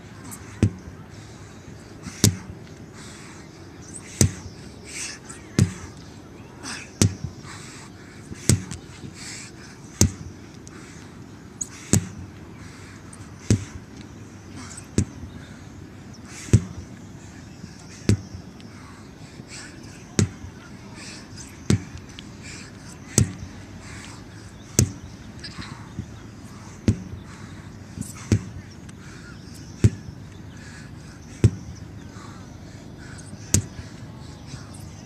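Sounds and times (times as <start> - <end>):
sledgehammer whacking rubber tires: 0.3 - 0.9, 2.0 - 2.5, 4.0 - 4.5, 5.5 - 5.9, 7.0 - 7.3, 8.3 - 8.8, 10.0 - 10.3, 11.6 - 12.2, 13.4 - 13.8, 14.8 - 15.2, 16.4 - 16.9, 18.0 - 18.4, 20.2 - 20.5, 21.5 - 22.0, 23.0 - 23.5, 24.7 - 26.1, 26.7 - 27.2, 28.0 - 28.7, 29.6 - 30.1, 31.4 - 31.7, 33.4 - 33.8.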